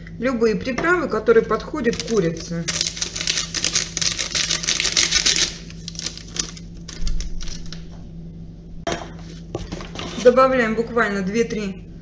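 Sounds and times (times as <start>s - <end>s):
dry spice rattling from packet: 1.9s - 7.8s.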